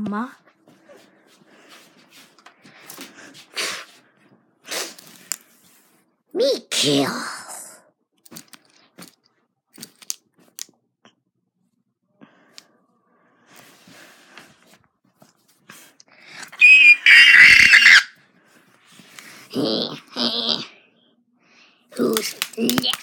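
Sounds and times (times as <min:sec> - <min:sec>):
handling clicks and rustles: 0:08.2 - 0:10.7
high-pitched wavering shriek: 0:16.6 - 0:18.1.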